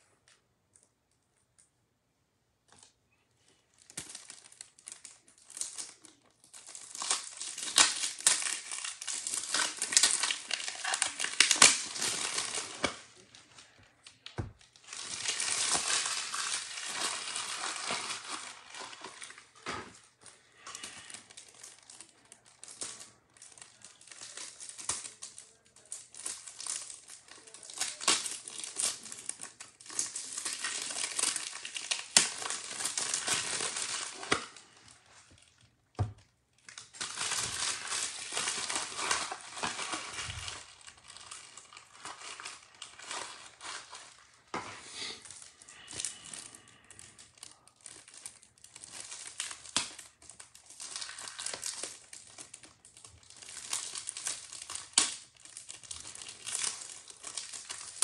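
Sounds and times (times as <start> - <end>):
plastic wrapping crinkling and tearing: 2.6 - 58.0.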